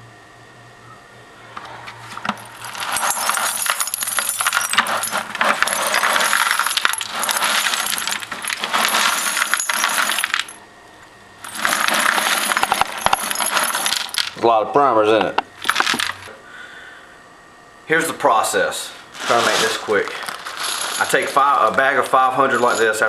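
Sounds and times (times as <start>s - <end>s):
metal cases rattling in bucket: 2.2s - 10.6s, 11.5s - 14.4s, 15.6s - 16.3s, 19.2s - 23.0s.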